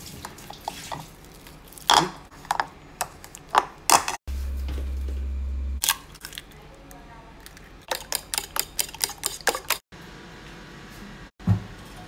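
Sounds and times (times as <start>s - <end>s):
steady low hum: 4.3s - 6.2s.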